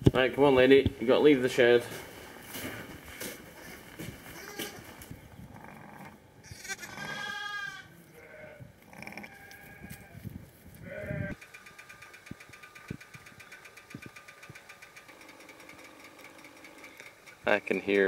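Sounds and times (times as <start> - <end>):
sheep bleating: 3.6 - 4.8, 6.4 - 10.2, 10.8 - 11.4.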